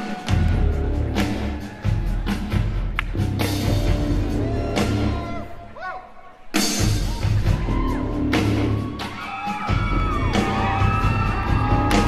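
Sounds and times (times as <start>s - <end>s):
live band music: 0.0s - 5.7s, 6.4s - 12.0s.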